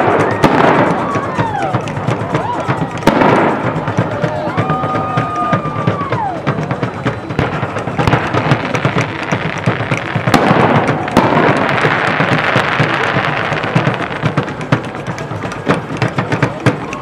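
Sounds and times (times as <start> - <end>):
sharp firework bangs: 0.0 - 2.2, 2.8 - 5.9, 6.9 - 15.0
fireworks bursting and crackling: 0.0 - 17.0.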